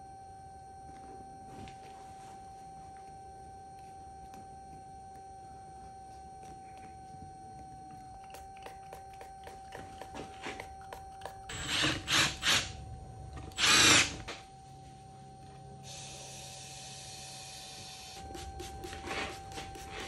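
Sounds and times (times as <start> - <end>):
cordless drill driving bolts: 13.6 - 14.2.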